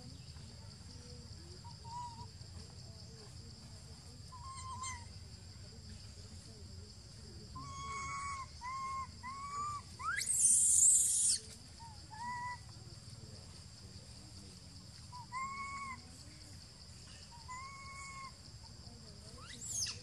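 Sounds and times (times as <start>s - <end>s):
baby monkey shrill scream: 4.4s - 5.1s, 7.6s - 11.5s, 15.2s - 16.0s, 17.5s - 18.4s, 19.4s - 20.0s
baby monkey whimpering coos: 7.6s - 11.4s, 17.5s - 18.3s.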